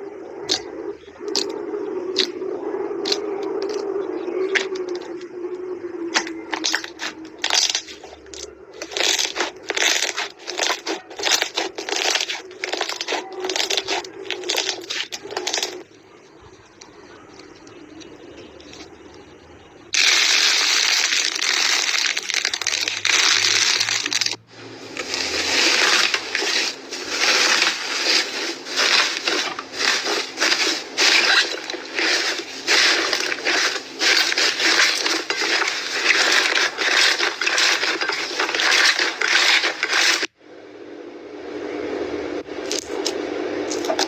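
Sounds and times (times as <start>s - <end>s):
aluminium foil crinkling: 6.2s - 15.9s, 20.0s - 40.3s.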